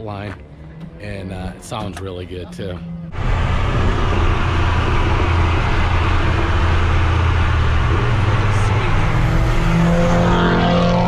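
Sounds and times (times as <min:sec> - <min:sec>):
car engine drone: 0:00.0 - 0:11.0.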